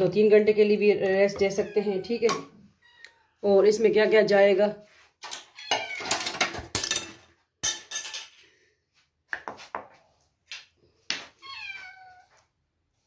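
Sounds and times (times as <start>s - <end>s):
glass and crockery clinking: 5.7s - 8.3s.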